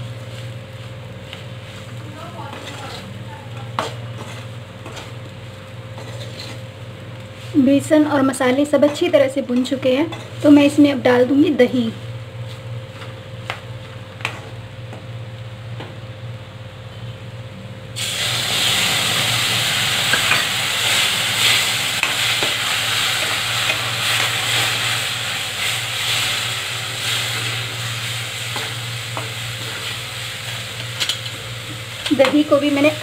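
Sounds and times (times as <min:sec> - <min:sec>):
curd sizzling in hot oil: 0:00.0 - 0:15.7, 0:17.8 - 0:33.0
spatula stirring in pan: 0:00.2 - 0:07.5.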